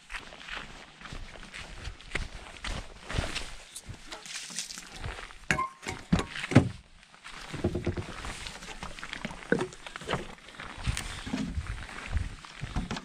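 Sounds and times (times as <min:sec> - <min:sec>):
knocks and thumps: 0:05.5 - 0:06.8, 0:07.5 - 0:08.1.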